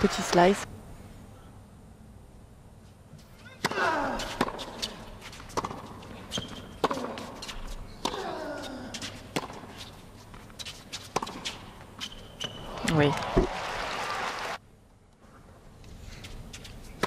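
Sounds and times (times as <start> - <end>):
tennis ball bouncing: 3.5 - 8.2, 9.0 - 13.5
racket striking tennis ball: 3.5 - 8.3, 9.0 - 9.8, 11.0 - 11.8
players grunting: 3.7 - 4.4, 8.1 - 9.1
shoe squeak: 6.3 - 6.8, 10.6 - 12.8.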